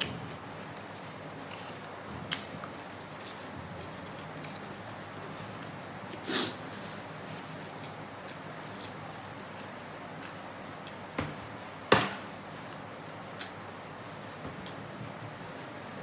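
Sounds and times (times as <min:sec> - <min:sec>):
person slurping noodles: 0:06.2 - 0:06.6.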